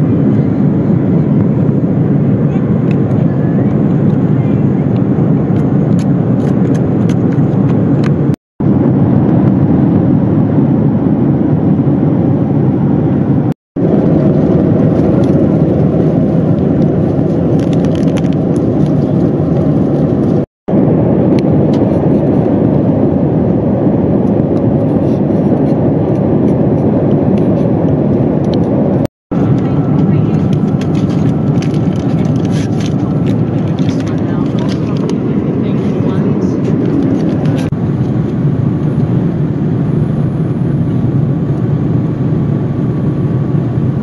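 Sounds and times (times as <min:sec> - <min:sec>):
airliner cabin noise: 0:00.0 - 0:44.0
packet rustling: 0:30.3 - 0:35.1.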